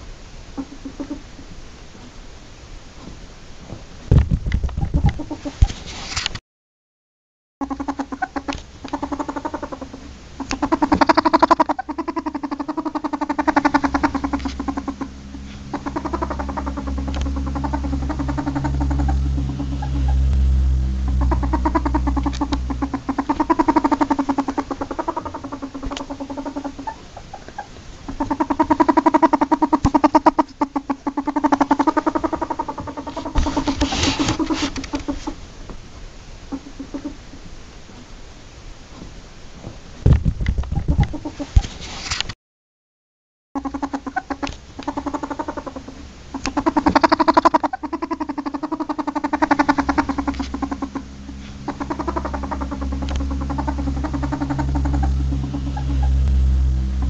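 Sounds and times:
ferret clucking chuckles: 7.6s - 20.2s, 21.1s - 35.3s, 43.6s - 56.2s
low hum: 7.6s - 36.4s, 43.6s - 57.0s.

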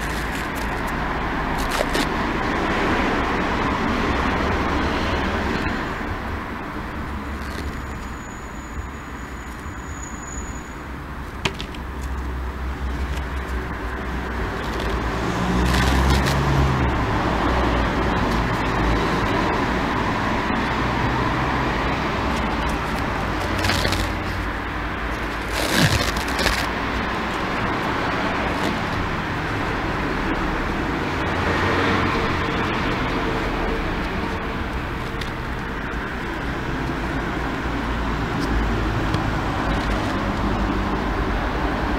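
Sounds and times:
tape unrolling crackles: 0.0s - 2.6s, 7.3s - 8.2s, 11.3s - 16.9s, 21.7s - 29.2s, 34.0s - 35.6s
road traffic noise: 0.0s - 41.9s.

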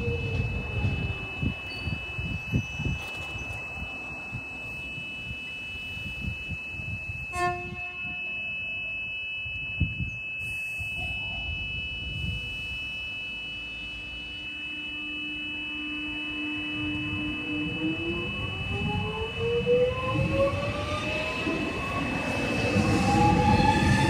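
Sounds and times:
electric train rumbling: 0.0s - 24.0s
high thin tone: 0.2s - 18.9s
train horn toot: 7.2s - 8.9s, 13.8s - 19.1s.

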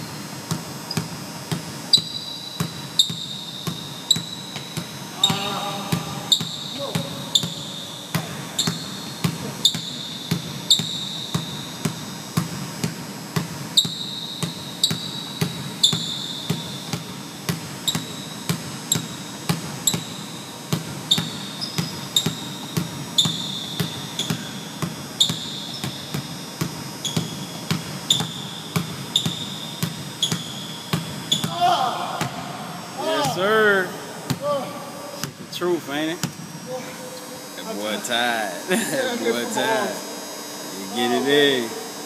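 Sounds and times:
basketball bouncing on hardwood floor: 0.0s - 32.5s
sneakers squeaking on floor: 0.0s - 32.5s.

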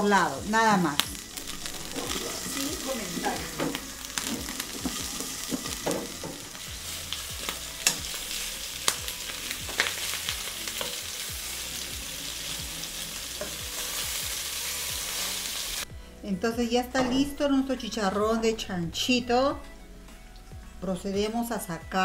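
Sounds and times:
meat sizzling in a pan: 0.0s - 15.9s.

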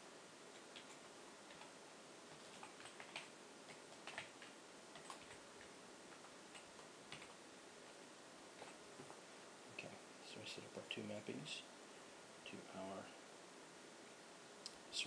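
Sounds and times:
low steady hiss: 0.0s - 15.0s
keyboard keys typing: 0.5s - 7.4s.

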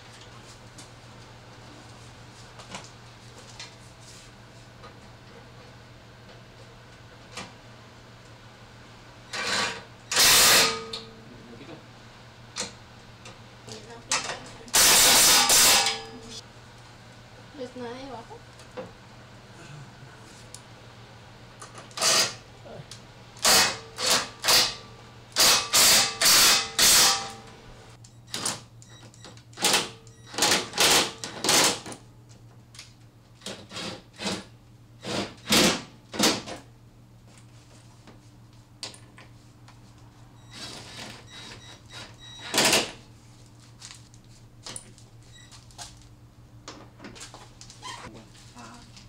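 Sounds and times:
steady low hum: 0.0s - 33.4s
power wrench bursts: 9.4s - 10.8s, 14.8s - 15.9s, 21.9s - 22.4s, 23.4s - 24.7s, 25.4s - 27.3s.

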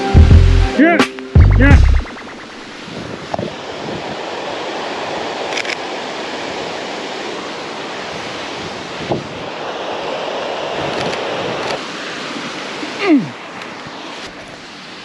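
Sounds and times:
mountain stream: 0.0s - 15.0s
wind rushing: 1.4s - 13.0s.

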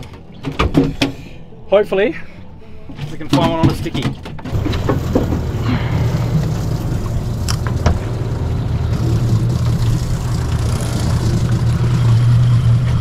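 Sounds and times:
boat engine droning: 4.5s - 13.0s
water rushing along hull: 4.5s - 13.0s.

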